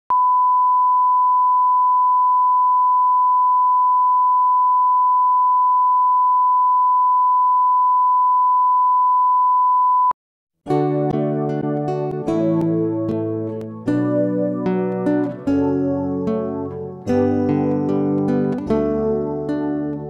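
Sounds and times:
guitar music: 10.6 - 20.0.

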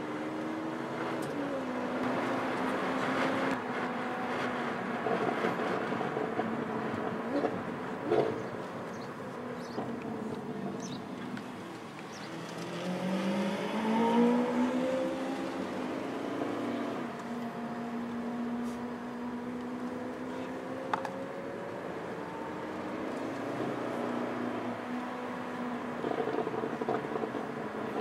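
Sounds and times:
sports car engine pulling away: 11.6 - 28.0.

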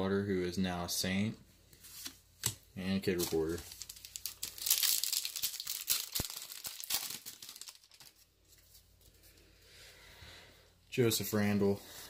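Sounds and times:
cards rustling: 1.7 - 9.4
wrapper tearing and crinkling: 3.2 - 8.3.

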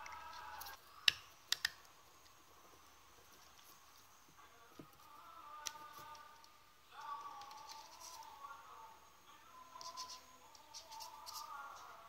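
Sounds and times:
fingers handling plastic clicks: 0.0 - 1.8.

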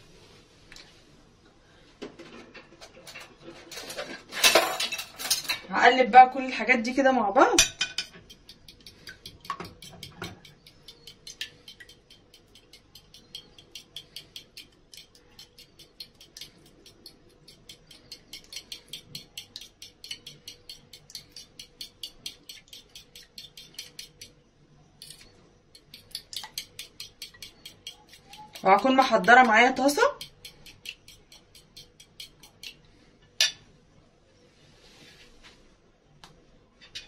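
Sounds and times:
fork clicking on ceramic plate: 7.6 - 24.3, 25.0 - 32.8.

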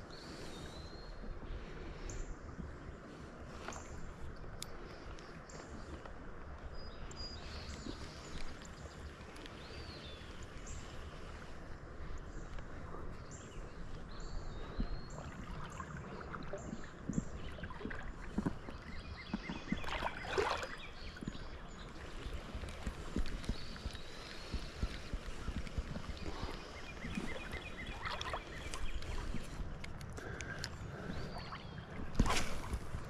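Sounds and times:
birds chirping: 0.0 - 33.0
water sloshing around waders: 1.5 - 33.0
water splash: 19.8 - 20.8, 32.0 - 33.0.

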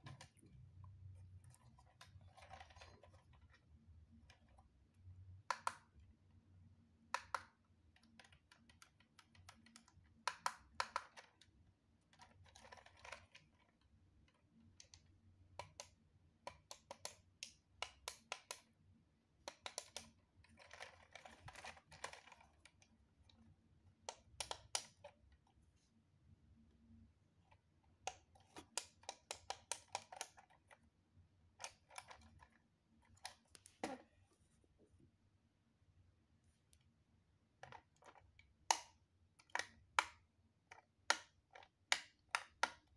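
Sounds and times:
plastic parts clicking and rattling: 0.0 - 4.7, 7.2 - 18.7, 19.4 - 25.5, 27.4 - 30.9, 31.5 - 34.0, 37.6 - 42.9.

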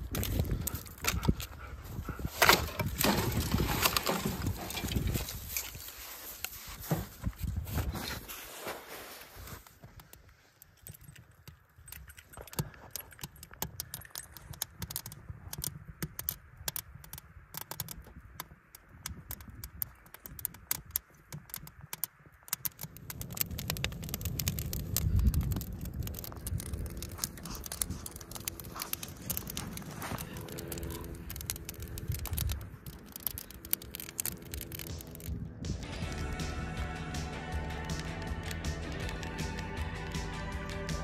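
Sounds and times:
wood fire crackling and popping: 0.0 - 6.6, 9.8 - 41.0.

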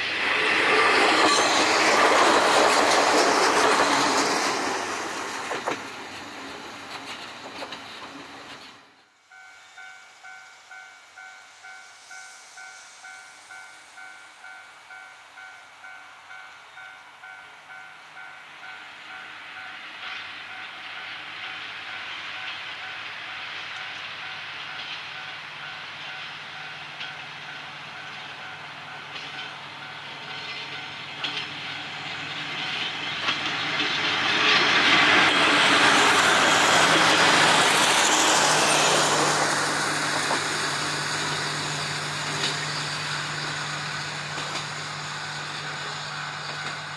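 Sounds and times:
train wheels clattering on rails: 0.0 - 8.9, 18.7 - 46.9
diesel railcar engine hum: 0.0 - 46.9.

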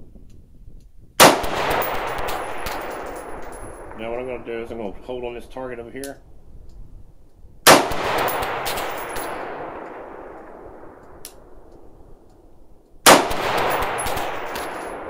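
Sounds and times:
rifle shots with echo: 1.2 - 5.0, 7.6 - 12.0, 13.0 - 15.0.

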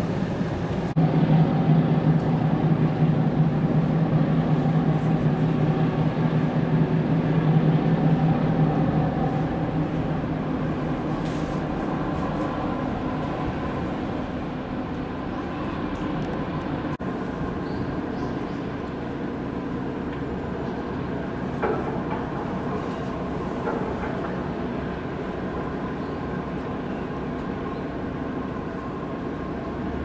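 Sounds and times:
tugboat diesel engines droning: 0.0 - 30.0.

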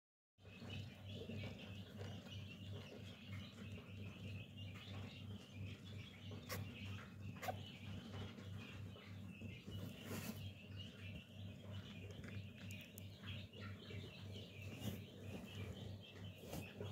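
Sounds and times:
kittens squeaking: 6.4 - 7.9.

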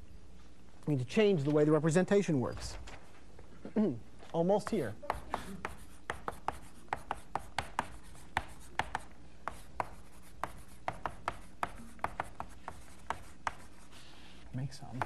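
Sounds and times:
chalk tapping on blackboard: 4.6 - 14.3.

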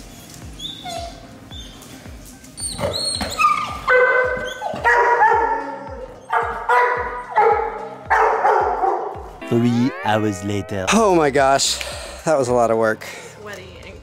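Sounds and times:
dog barking: 3.8 - 9.2
music with steady beat: 5.4 - 12.2.

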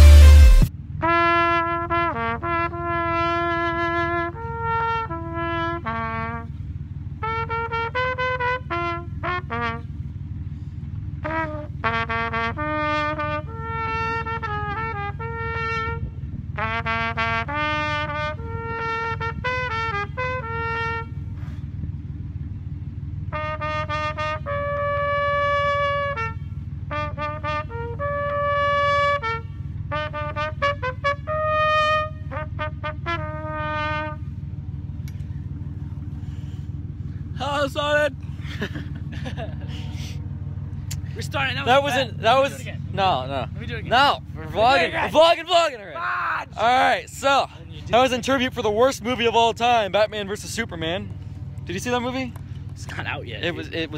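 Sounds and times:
trumpet melody: 0.0 - 10.2, 11.1 - 21.4, 23.2 - 34.8
low rumble: 0.0 - 28.8, 29.4 - 53.9.

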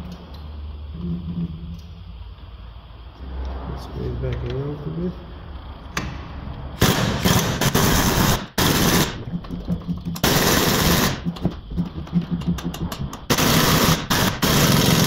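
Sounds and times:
pneumatic impact wrench hammering: 6.8 - 9.3, 10.1 - 15.0.

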